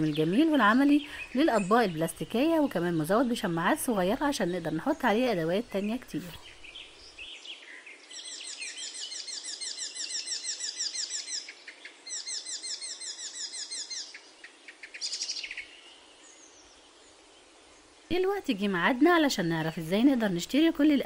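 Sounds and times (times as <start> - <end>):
faint hiss: 0.0 - 9.4, 14.0 - 21.0
small bird chirping: 0.0 - 17.6.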